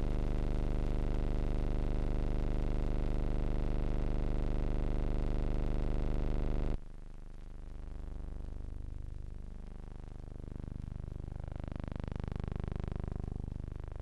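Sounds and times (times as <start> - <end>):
low electrical hum: 5.2 - 14.0.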